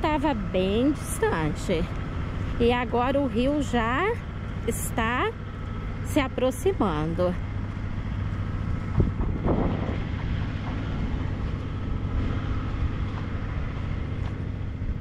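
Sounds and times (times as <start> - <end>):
low motor hum: 0.0 - 15.0
wind noise: 8.6 - 15.0.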